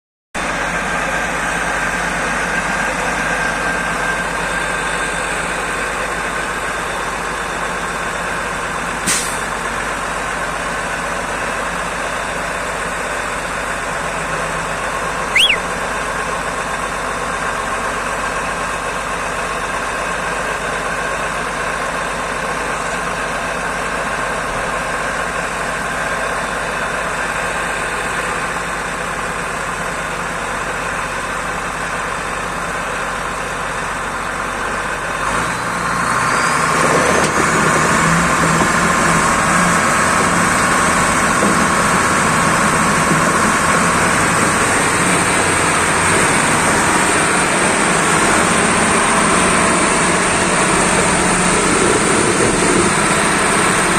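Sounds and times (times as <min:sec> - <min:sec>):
heavy diesel engines running: 0:00.4 - 0:53.9
brief high squeak: 0:15.3 - 0:15.7.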